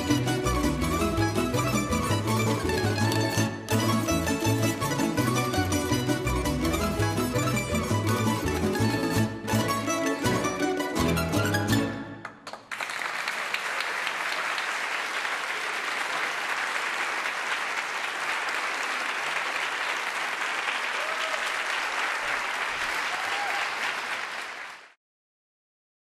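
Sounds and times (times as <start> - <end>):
audience applause: 12.2 - 25.0.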